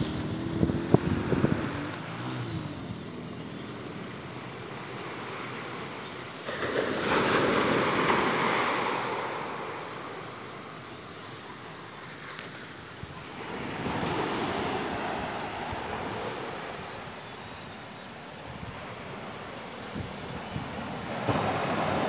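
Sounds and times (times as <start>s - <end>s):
wind buffeting microphone: 0.0s - 3.6s
waves washing up pebbly beach: 4.8s - 10.5s, 20.3s - 22.0s.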